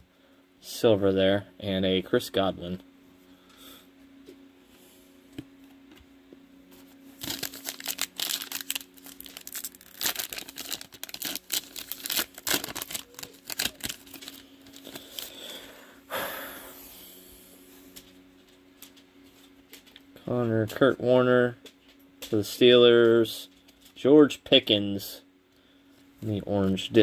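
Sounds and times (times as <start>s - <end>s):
plastic wrapper tearing and crinkling: 7.2s - 15.4s.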